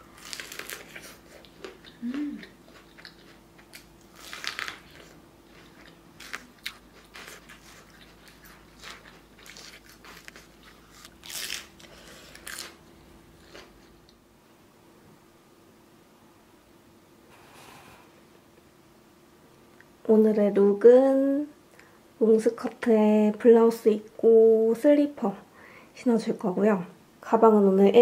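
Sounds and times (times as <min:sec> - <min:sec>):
chewing crunchy corn: 0:00.0 - 0:14.0.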